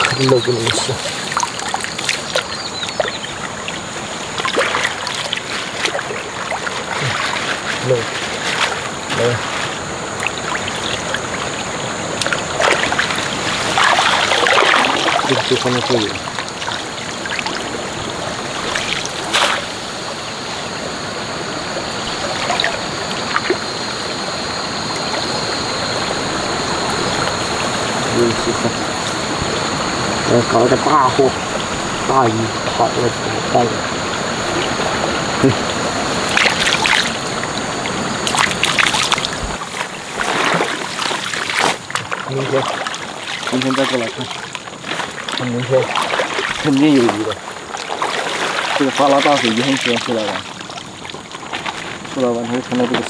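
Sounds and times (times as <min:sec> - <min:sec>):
water trickling through grass: 0:00.0 - 0:20.8, 0:21.5 - 0:53.0
small splashes: 0:00.0 - 0:21.0, 0:21.6 - 0:29.6, 0:30.4 - 0:53.0
floodwater rushing: 0:00.0 - 0:53.0.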